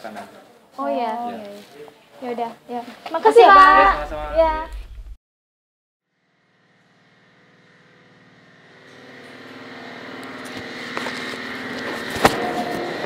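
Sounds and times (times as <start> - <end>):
steady machine hum: 3.6 - 5.2.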